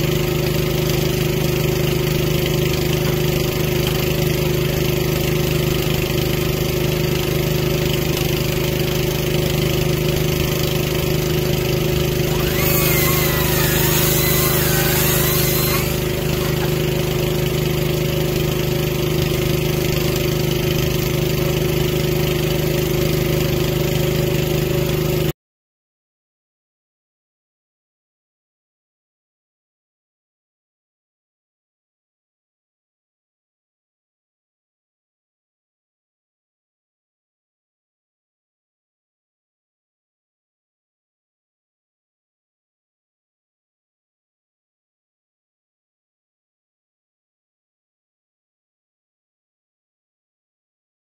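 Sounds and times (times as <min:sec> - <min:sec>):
small engine idling: 0:00.0 - 0:25.3
wavering whine with hiss: 0:12.4 - 0:17.4.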